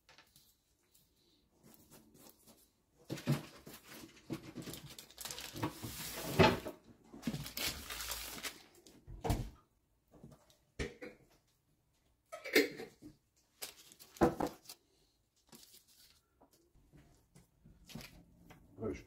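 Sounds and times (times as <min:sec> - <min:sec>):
baking paper rustling: 0:00.0 - 0:09.0, 0:13.5 - 0:16.5.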